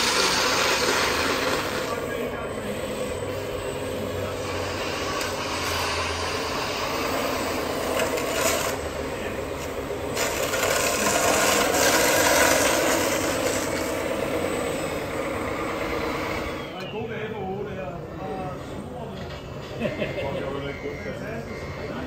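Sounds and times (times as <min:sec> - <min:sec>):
model loader bucket scraping sand: 0:00.0 - 0:16.7.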